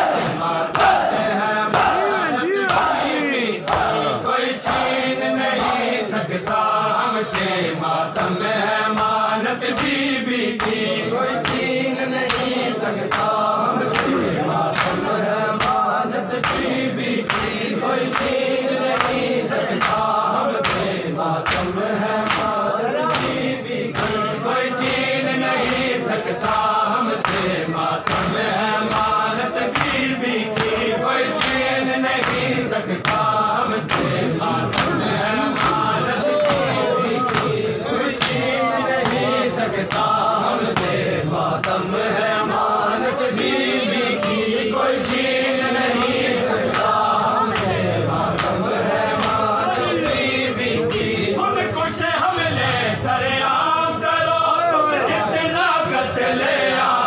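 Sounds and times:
men chanting in rhythm: 0.0 - 57.0
hands slapping on chests: 0.1 - 7.6, 8.2 - 25.0, 25.6 - 41.9, 45.9 - 50.3.

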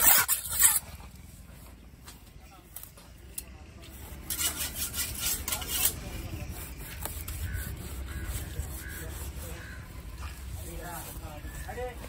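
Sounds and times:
knife scraping and slicing flesh: 0.0 - 0.9.

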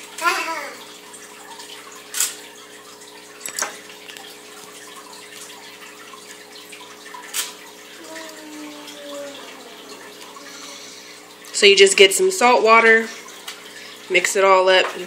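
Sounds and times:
faint steady hum: 0.0 - 14.7
necklaces splashing in water: 1.7 - 7.9.

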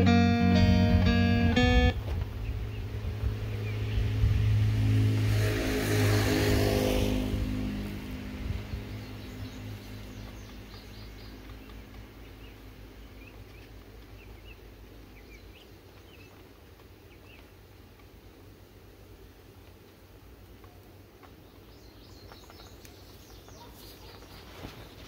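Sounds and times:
passing vehicle engine: 0.0 - 14.5
faint outdoor background noise: 0.0 - 25.0
bird chirps: 8.6 - 17.5, 20.6 - 25.0.

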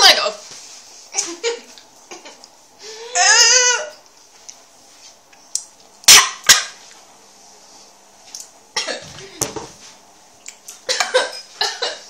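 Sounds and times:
girl crying out: 3.0 - 4.0.

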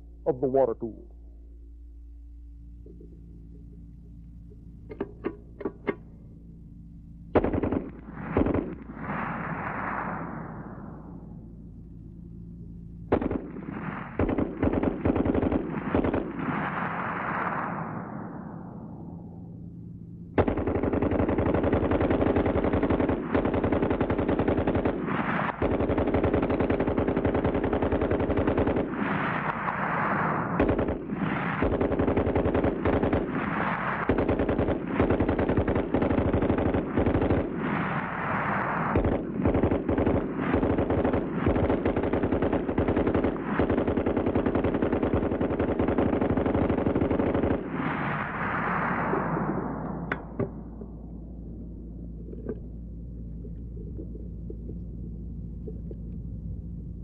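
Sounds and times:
machine gun automatic fire: 7.3 - 10.8, 13.1 - 18.6, 20.4 - 50.4.

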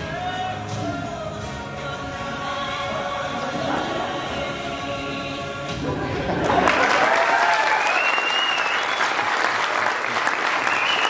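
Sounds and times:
music: 0.0 - 7.1
audience applause: 6.3 - 11.0
audience cheering: 6.4 - 11.0.

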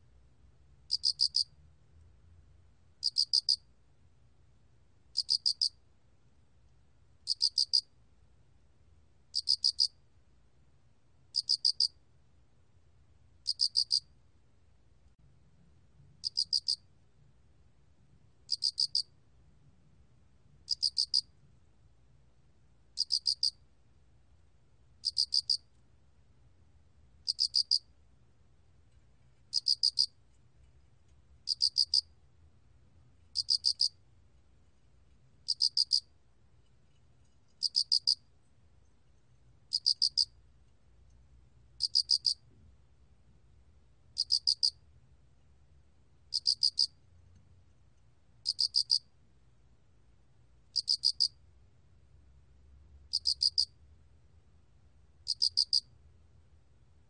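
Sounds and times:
cricket chirping: 0.9 - 1.6, 3.0 - 3.7, 5.1 - 5.8, 7.2 - 7.9, 9.3 - 10.0, 11.3 - 12.0, 13.4 - 14.1, 16.2 - 16.9, 18.5 - 19.1, 20.7 - 21.3, 23.0 - 23.6, 25.0 - 25.7, 27.2 - 27.9, 29.5 - 30.2, 31.4 - 32.1, 33.3 - 34.0, 35.4 - 36.1, 37.5 - 38.3, 39.7 - 40.4, 41.8 - 42.4, 44.2 - 44.8, 46.3 - 47.0, 48.4 - 49.1, 50.7 - 51.4, 53.1 - 53.8, 55.2 - 55.9.

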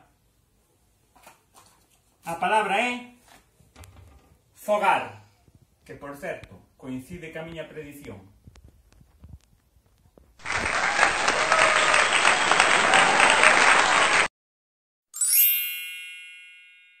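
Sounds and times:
applause: 10.4 - 14.3
bright ringing chime: 15.2 - 17.0.

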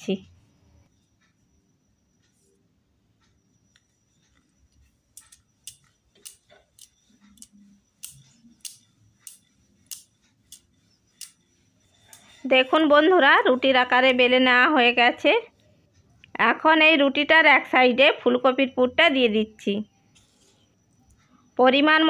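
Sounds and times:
rolling pin rolling dough: 0.0 - 16.2.

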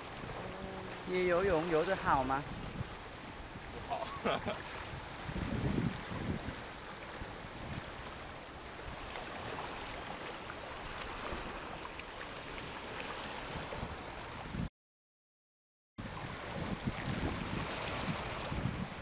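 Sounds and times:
sea water washing over rocks: 0.0 - 14.7, 16.0 - 19.0.

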